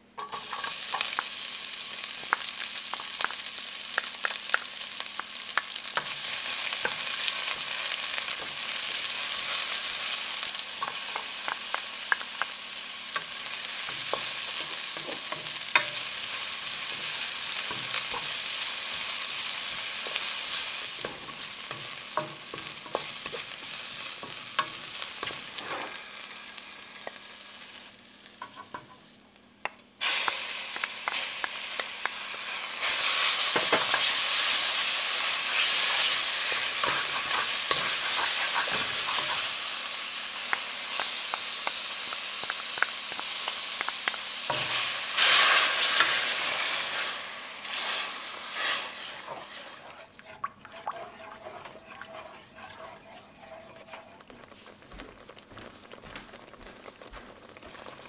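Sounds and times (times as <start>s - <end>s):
shallots sizzling in hot oil: 0.0s - 58.0s
wooden spatula scraping pot: 48.8s - 55.4s.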